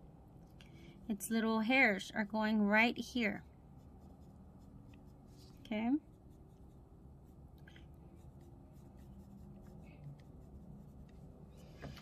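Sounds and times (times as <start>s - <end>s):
pencil scratching on paper: 3.8s - 11.7s.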